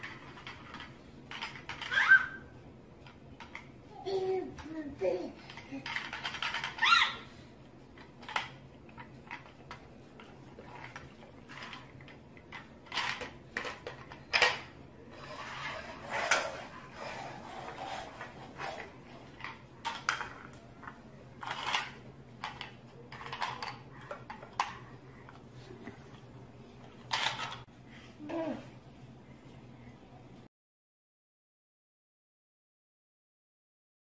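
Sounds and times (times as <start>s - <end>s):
plastic toys clattering on wooden floor: 0.0s - 2.1s, 5.5s - 7.0s, 8.0s - 25.4s, 26.9s - 27.7s.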